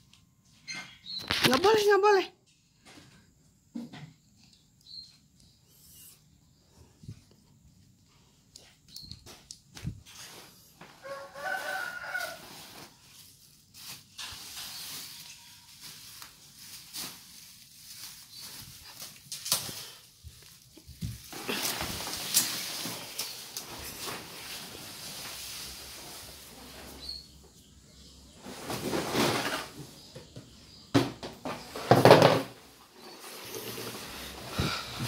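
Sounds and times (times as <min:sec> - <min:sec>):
tent fabric rustling and crinkling: 0:10.0 - 0:27.2.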